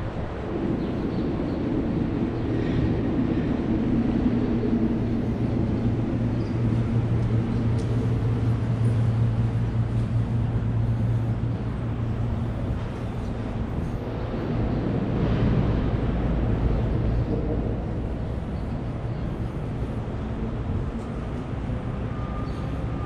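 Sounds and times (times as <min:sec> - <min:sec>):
engine hum: 0:00.0 - 0:23.0
road noise: 0:00.0 - 0:23.0.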